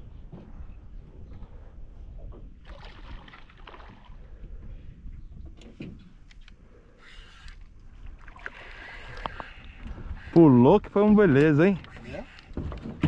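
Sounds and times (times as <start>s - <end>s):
fish splashing in water: 2.6s - 4.2s.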